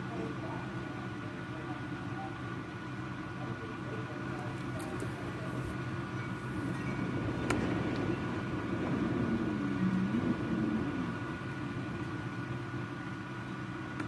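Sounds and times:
wind roaring: 4.8s - 13.1s.

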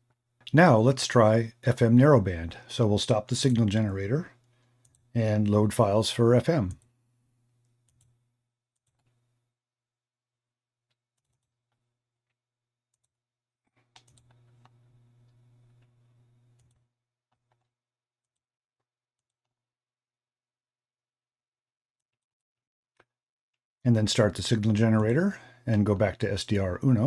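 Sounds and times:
faint mouse clicks: 13.8s - 15.9s.

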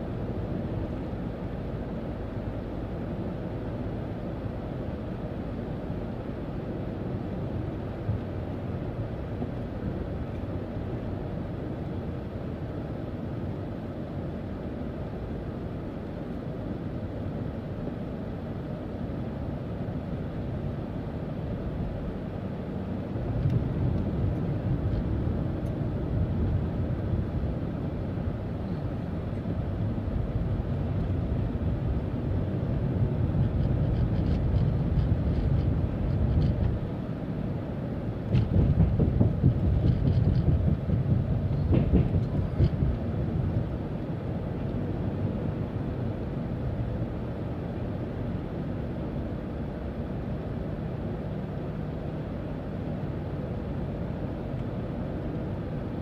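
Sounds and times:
tyre and road noise: 21.8s - 56.0s
light clicks and rattles: 33.4s - 36.8s.

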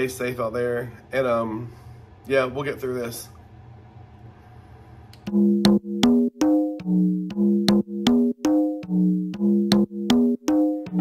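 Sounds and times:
intro music with sustained chords: 5.3s - 11.0s
sharp percussive hits: 5.3s - 11.0s.

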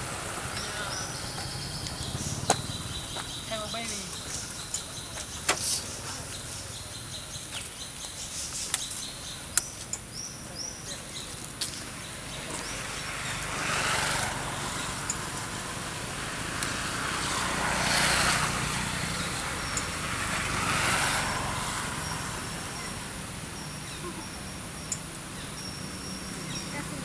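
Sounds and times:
vehicles passing: 0.0s - 27.0s.

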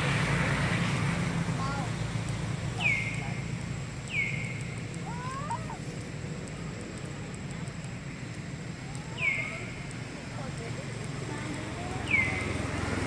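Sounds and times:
low background rumble: 0.0s - 13.0s
bird calling: 2.7s - 5.9s, 8.8s - 10.6s, 11.2s - 12.8s
faint wavering call: 8.8s - 9.9s.

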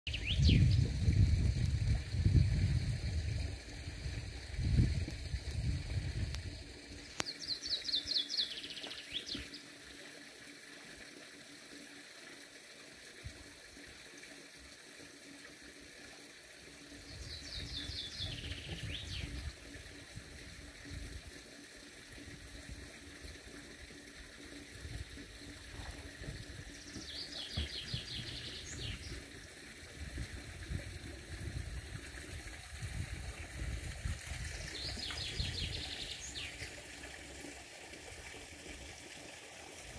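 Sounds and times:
songbird singing: 0.1s - 0.9s, 7.0s - 9.7s, 17.0s - 19.5s, 25.4s - 29.3s, 34.5s - 36.8s.

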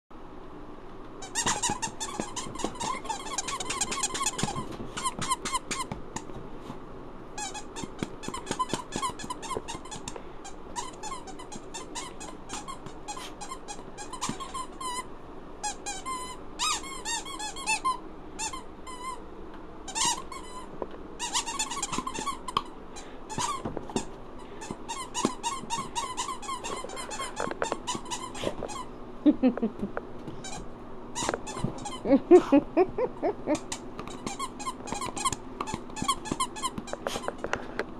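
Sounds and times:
squeaky toy squeaking: 1.2s - 6.0s, 7.4s - 10.1s, 10.8s - 19.2s, 19.9s - 22.6s, 23.3s - 28.9s, 31.2s - 32.2s, 33.5s - 37.3s.

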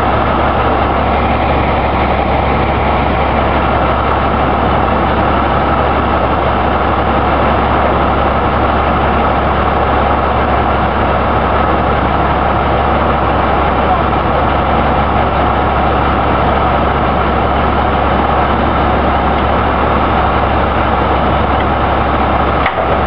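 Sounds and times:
truck engine idling: 0.0s - 23.0s.

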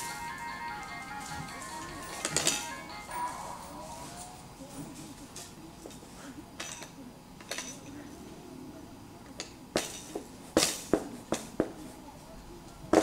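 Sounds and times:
faint low murmur: 0.0s - 13.0s
sharp clinks and knocks: 6.6s - 8.0s.

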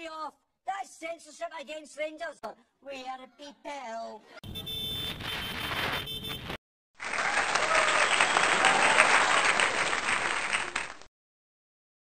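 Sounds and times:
crowd applause: 7.0s - 11.1s.

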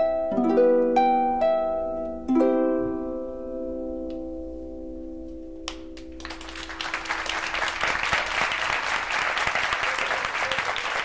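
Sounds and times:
audience applause: 6.0s - 11.0s.

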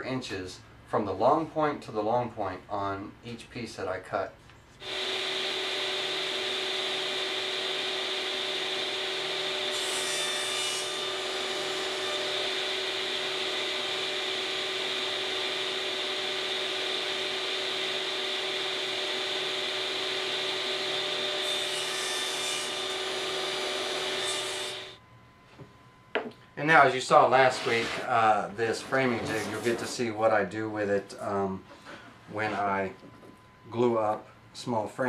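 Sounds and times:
table saw whine: 4.8s - 25.0s, 26.7s - 30.1s.

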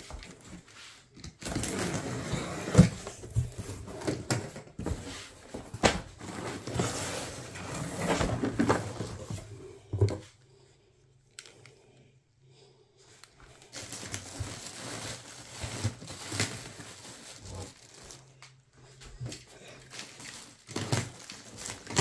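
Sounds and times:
packing paper rustling: 13.6s - 18.6s, 19.2s - 22.0s.

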